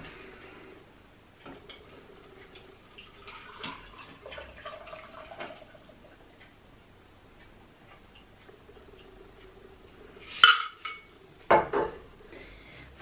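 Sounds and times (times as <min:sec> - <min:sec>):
liquid trickling into mug: 0:02.9 - 0:06.1.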